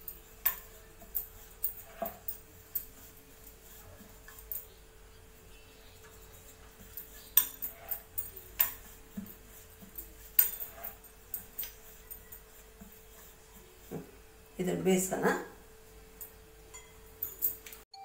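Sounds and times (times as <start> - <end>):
bangles jingling: 0.0 - 4.9, 6.0 - 13.3, 16.1 - 17.8.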